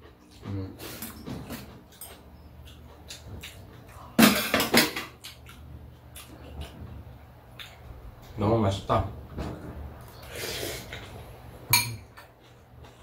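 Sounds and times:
utensils clinking on ceramic bowls: 0:11.7 - 0:12.3.

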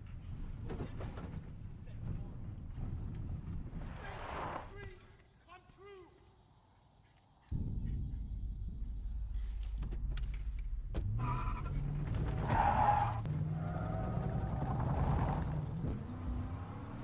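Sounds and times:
car engine revving: 0:10.9 - 0:17.0.

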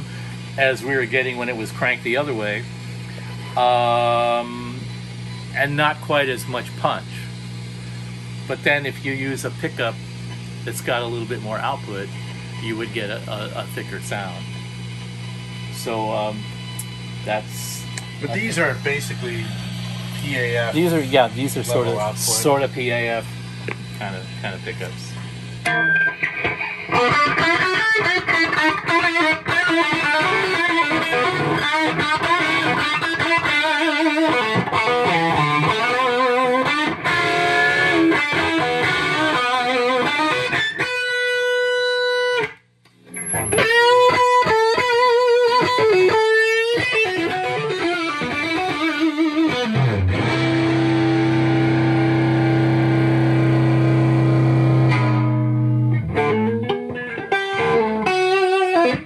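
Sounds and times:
overdriven electric guitar: 0:12.1 - 0:59.0.

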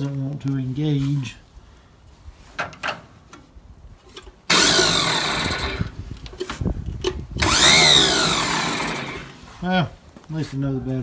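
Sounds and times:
starter motor whining: 0:04.5 - 0:06.0, 0:07.4 - 0:09.4.

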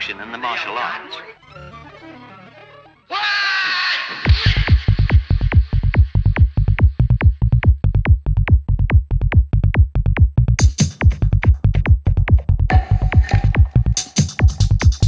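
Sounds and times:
psy-trance electronic music: 0:04.0 - 0:15.0
four-on-the-floor kick drum: 0:04.2 - 0:15.0
rolling bassline: 0:04.3 - 0:15.0
bright high percussion: 0:12.7 - 0:15.0.

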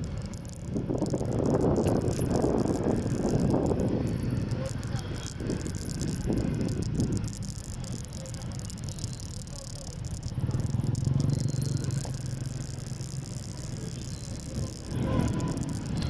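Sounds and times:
motorbike engine running: 0:00.0 - 0:16.0
road and traffic noise: 0:00.0 - 0:16.0.

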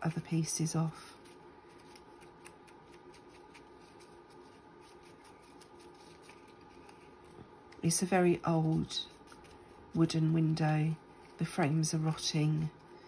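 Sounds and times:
scissors cutting paper: 0:01.7 - 0:07.0.

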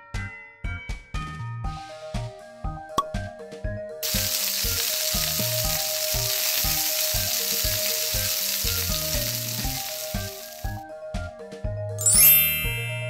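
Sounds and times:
light background music: 0:00.0 - 0:13.0
food sizzling in a pan: 0:04.0 - 0:10.8.

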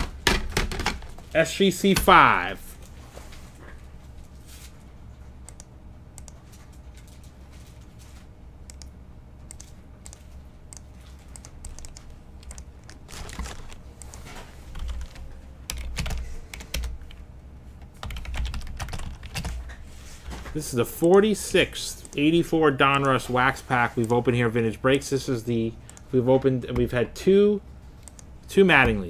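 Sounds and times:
typing on computer keyboard: 0:10.8 - 0:13.0, 0:14.0 - 0:17.2, 0:18.0 - 0:19.6.

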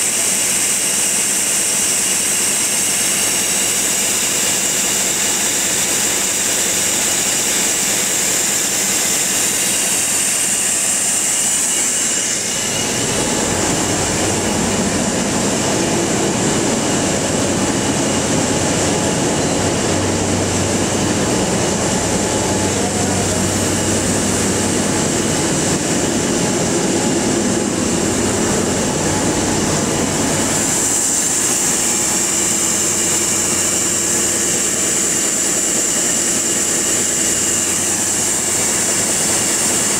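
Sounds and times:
engine-generator high hiss: 0:00.0 - 0:39.9
deep machinery rumble and hum: 0:08.6 - 0:39.9.

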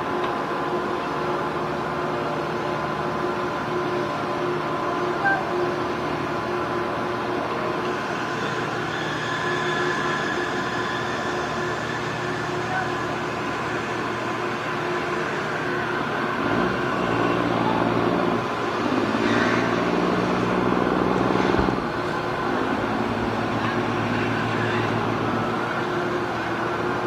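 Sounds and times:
engine humming: 0:15.6 - 0:27.0.

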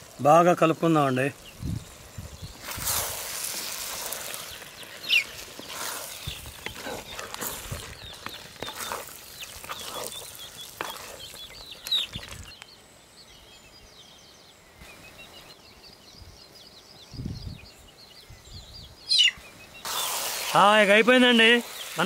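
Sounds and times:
small birds chirping: 0:00.0 - 0:22.0
spatula stirring curry in clay pot: 0:02.6 - 0:12.4.

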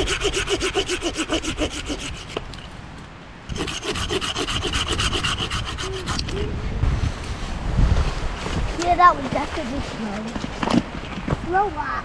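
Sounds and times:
hand saw cutting wood: 0:00.0 - 0:02.5, 0:03.5 - 0:06.4.

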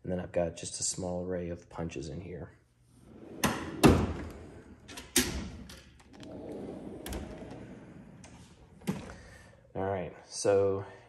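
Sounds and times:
drawer sliding out rumble: 0:03.0 - 0:09.4
metal drawer knocking shut: 0:03.4 - 0:04.4.

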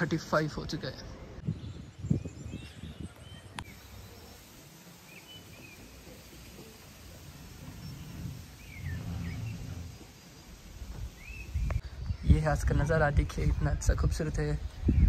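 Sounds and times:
faint outdoor background noise: 0:00.0 - 0:15.0
short bird chirps: 0:03.4 - 0:12.0
low rumble: 0:06.6 - 0:11.8.

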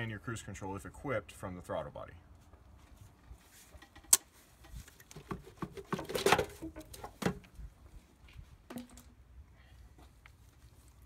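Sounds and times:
intake tube rubbing and knocking: 0:03.5 - 0:07.4.

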